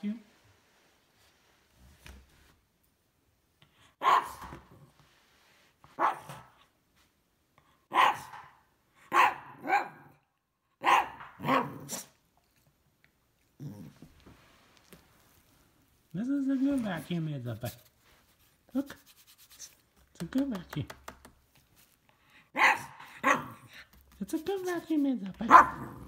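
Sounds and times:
dog barking: 0:04.0 - 0:04.6, 0:06.0 - 0:06.6, 0:07.9 - 0:10.2, 0:10.8 - 0:12.1, 0:22.5 - 0:23.8, 0:25.4 - 0:26.0.

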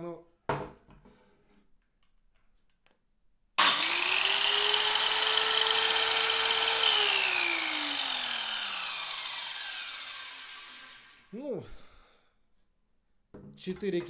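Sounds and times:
circular saw whine: 0:03.6 - 0:11.3.

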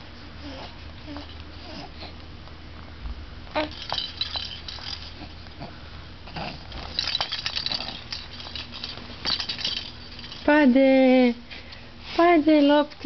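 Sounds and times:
baby grunting and mouthing: 0:05.2 - 0:06.8.

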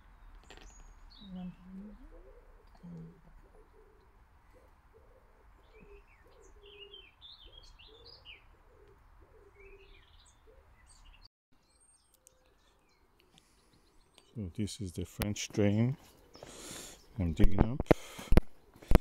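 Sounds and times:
short low bird calls: 0:00.0 - 0:11.3
small birds chirping: 0:00.0 - 0:19.0.

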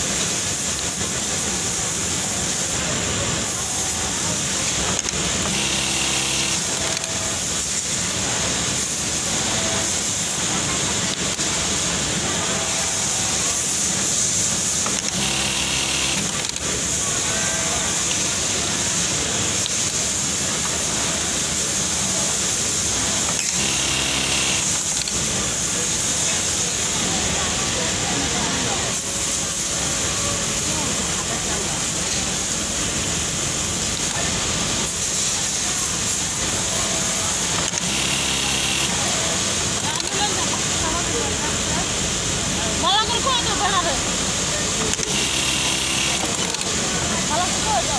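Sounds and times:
workroom hum: 0:00.0 - 0:47.9
sewing machine stitching: 0:03.8 - 0:07.9, 0:12.6 - 0:25.4, 0:34.8 - 0:40.3, 0:44.7 - 0:46.9.

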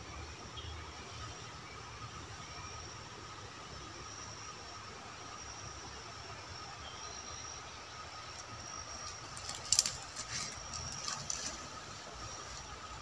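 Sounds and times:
steady hiss: 0:00.0 - 0:13.0
sharp cracks and crackles: 0:09.1 - 0:11.6.

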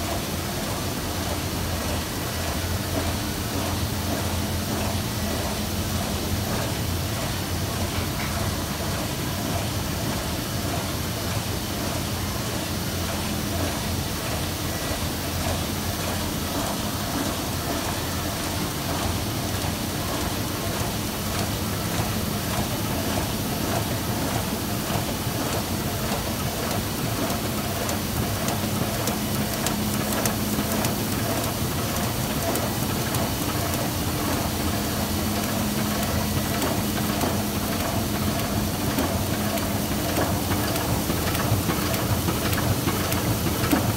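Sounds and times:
printing press running: 0:00.0 - 0:43.9.

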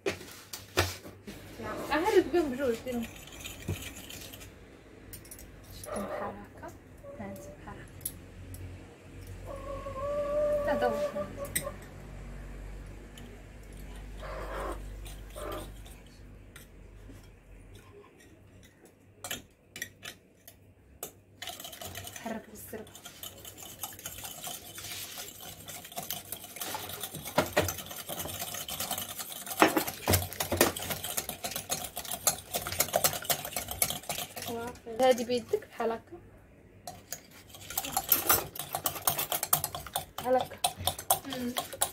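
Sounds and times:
whisk clinking against glass bowl: 0:02.5 - 0:04.5, 0:21.0 - 0:35.4, 0:36.9 - 0:41.9.

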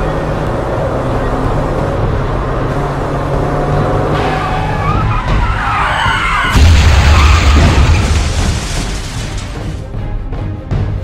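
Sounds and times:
car engine and road noise: 0:00.0 - 0:11.0
car crash impact: 0:06.2 - 0:09.8
windscreen shattering: 0:06.2 - 0:09.8.

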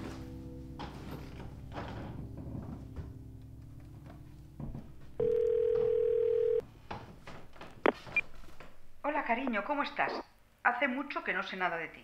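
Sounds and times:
soft sustained music: 0:00.0 - 0:05.6.

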